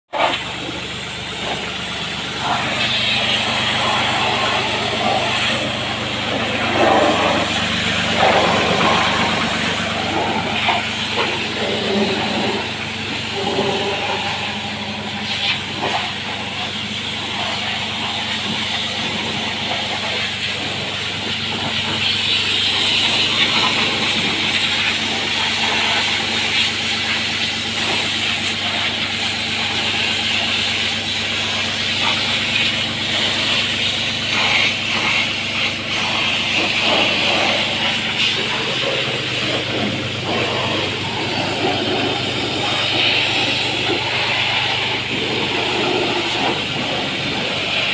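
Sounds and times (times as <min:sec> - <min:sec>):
low motor hum: 0:00.1 - 0:47.9
pressure washer spraying water: 0:00.2 - 0:47.9.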